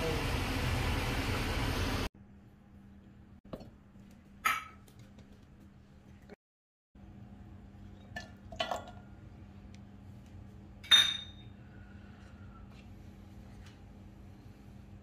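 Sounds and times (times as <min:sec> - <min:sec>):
glass bowl clinking against metal jar: 0:10.8 - 0:11.5.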